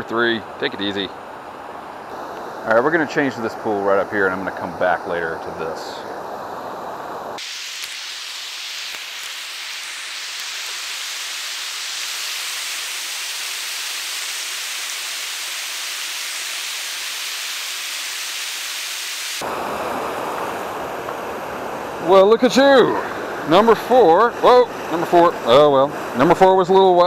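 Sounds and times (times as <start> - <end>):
stream water rushing over rocks: 19.4 - 26.9.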